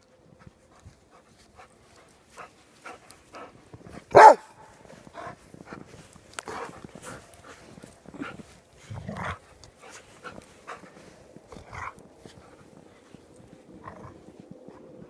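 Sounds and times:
puppies panting and scuffling: 0.0s - 15.0s
dog barking: 4.1s - 4.6s.

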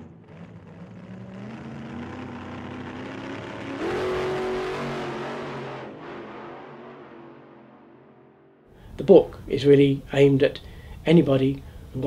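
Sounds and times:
car engine accelerating: 0.0s - 8.7s.

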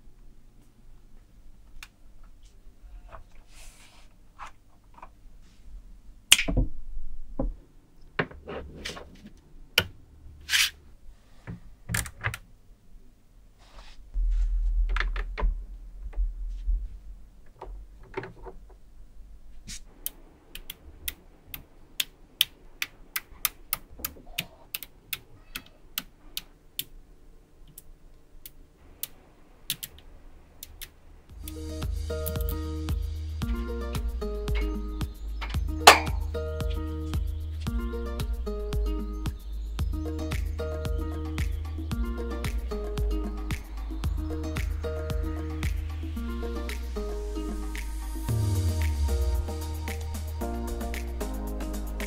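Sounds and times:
magnetic balls clicking: 20.0s - 27.0s, 32.2s - 32.7s
low handling rumble: 31.2s - 52.0s.

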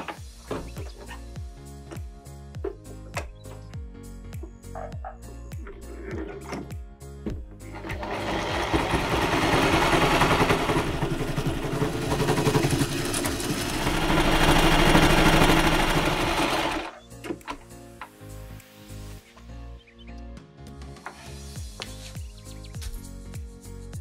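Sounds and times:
electric sewing machine stitching: 7.7s - 16.9s.

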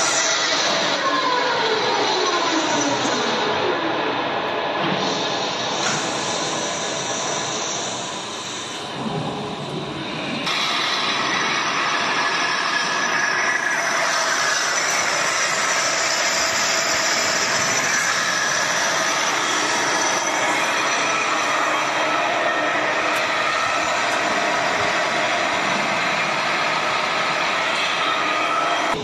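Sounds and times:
metal lathe running: 0.0s - 3.1s, 10.4s - 29.0s.

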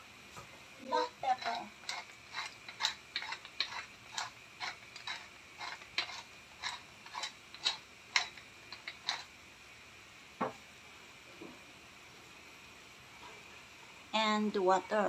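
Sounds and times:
pepper mill grinding clicks: 1.4s - 9.3s.

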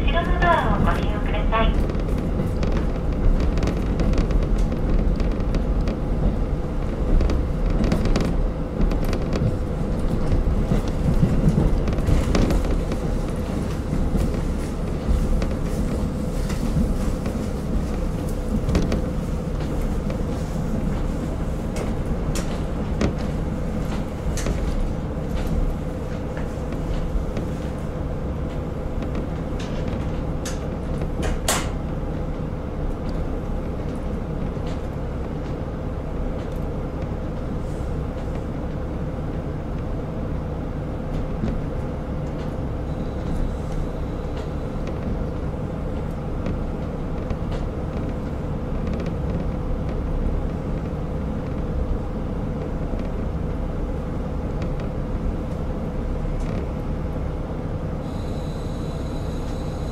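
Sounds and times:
diesel engine drone: 0.0s - 59.9s
steady hum: 0.0s - 59.9s
wheels rumbling on rails: 0.0s - 59.9s.

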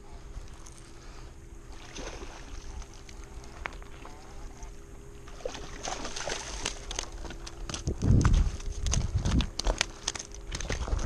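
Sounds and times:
fish splashing in water: 1.7s - 4.2s, 5.2s - 7.4s
wind rumble on microphone: 6.8s - 11.0s.

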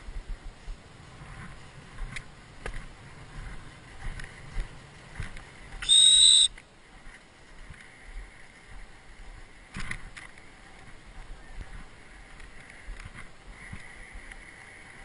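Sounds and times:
low wind rumble on microphone: 0.0s - 15.0s
dog whistle blast: 5.8s - 6.5s.

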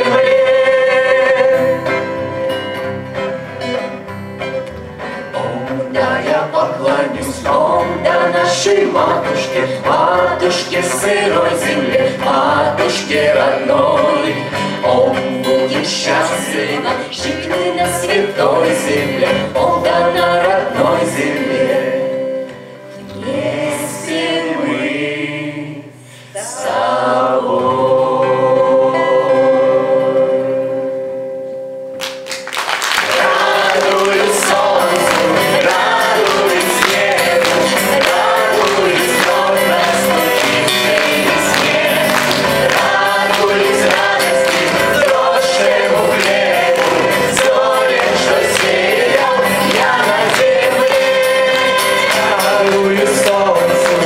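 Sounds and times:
group singing in unison: 0.0s - 2.6s, 5.1s - 31.3s, 32.9s - 54.0s
strummed acoustic guitars: 0.0s - 23.6s, 33.0s - 54.0s.

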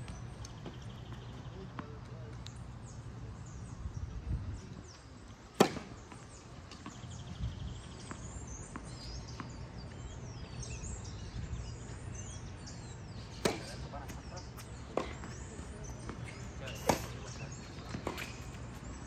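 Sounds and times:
birds chirping: 0.0s - 19.0s
tennis racket hitting ball: 13.4s - 18.6s.

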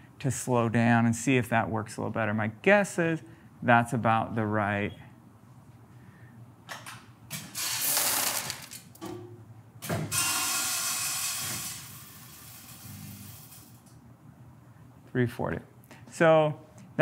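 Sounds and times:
product pouring with hiss: 10.9s - 13.8s.

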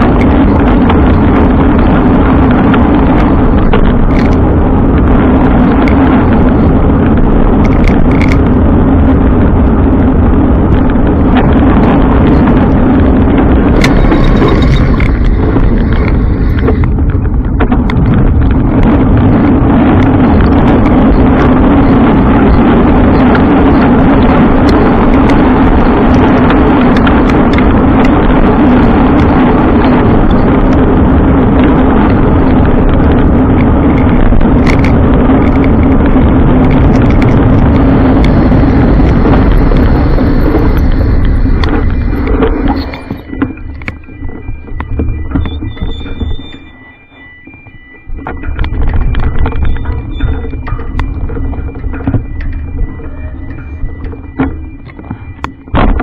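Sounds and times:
constant low hum: 0.0s - 56.0s
road and wind noise: 0.0s - 56.0s.

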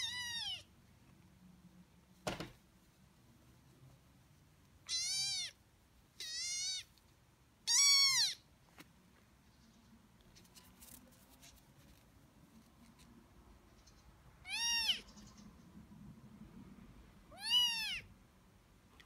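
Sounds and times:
kitten meowing: 0.0s - 0.7s, 4.9s - 5.6s, 6.2s - 6.9s, 7.7s - 8.4s, 14.4s - 15.1s, 17.3s - 18.1s.

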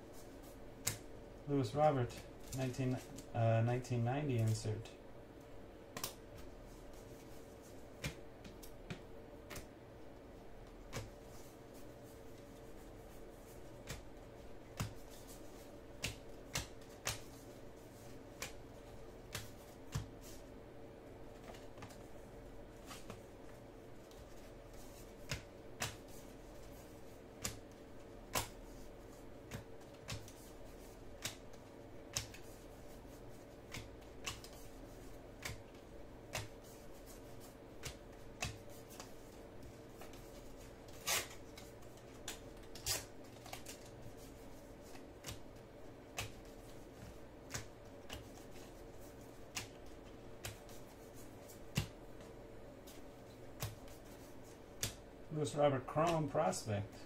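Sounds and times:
faint steady hum: 0.0s - 57.0s
cards flipping with light snaps: 0.8s - 1.1s, 5.4s - 9.7s, 14.7s - 20.4s, 24.1s - 55.0s.

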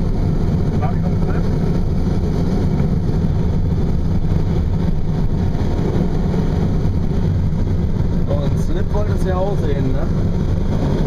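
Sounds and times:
air rushing over canopy: 0.0s - 11.0s.

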